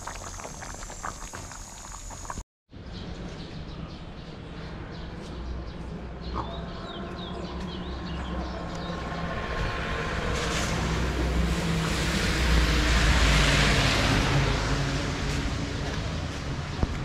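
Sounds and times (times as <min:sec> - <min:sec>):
vehicle passing by: 0:08.0 - 0:16.8.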